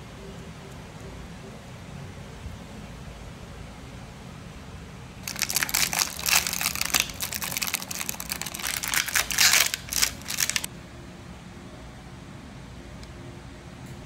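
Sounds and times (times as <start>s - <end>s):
plastic film crinkling: 5.2s - 10.7s.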